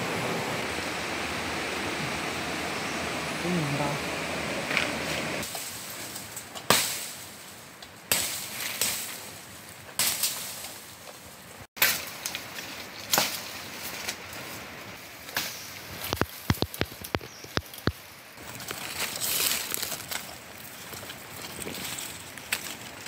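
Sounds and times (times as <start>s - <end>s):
stream rushing: 0.0s - 5.8s, 11.3s - 17.2s.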